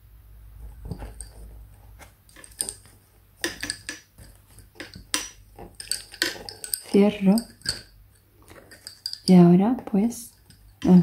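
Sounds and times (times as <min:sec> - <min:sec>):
soft handling rustle: 0:00.6 - 0:09.4
lace bobbins clicking together: 0:02.3 - 0:09.3.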